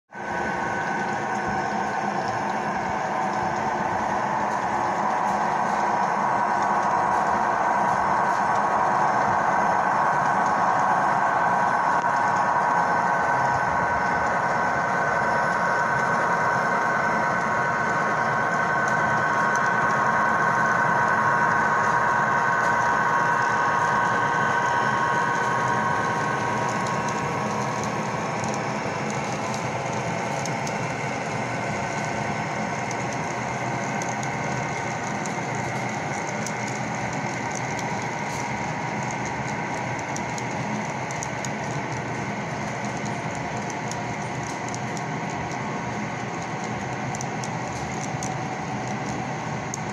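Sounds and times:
model locomotive humming: 0.2s - 49.9s
model train cars ticking on track: 0.2s - 49.9s.

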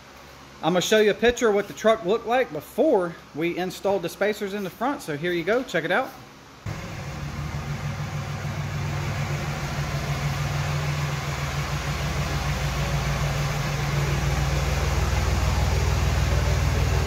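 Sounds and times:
diesel truck engine running: 6.7s - 17.0s.

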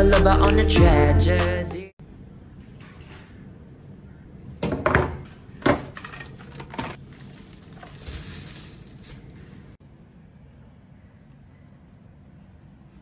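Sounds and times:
plastic bags crinkling: 6.0s - 9.8s.

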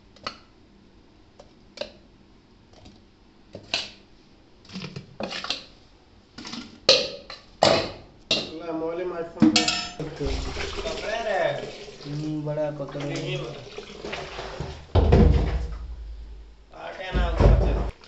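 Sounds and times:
metal pot and bowl clinking: 9.4s - 11.0s.

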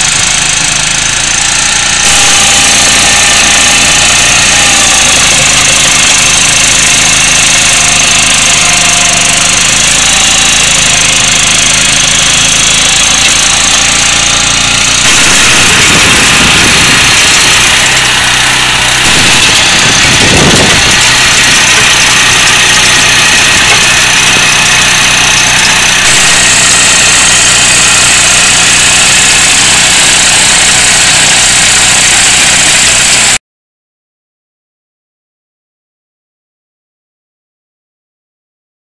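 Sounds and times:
two-wheel tractor engine running: 0.0s - 33.4s.

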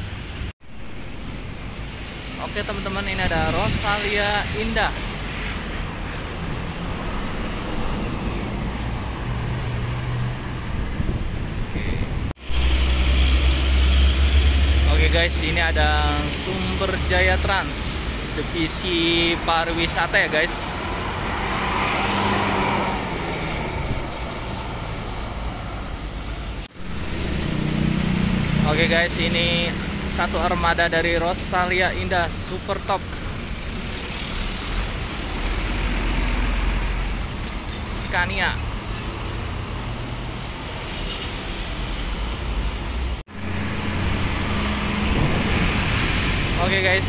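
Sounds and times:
road traffic noise: 0.0s - 47.0s
trucks and cars passing: 0.0s - 47.0s
coach diesel engine passing: 43.2s - 47.0s.

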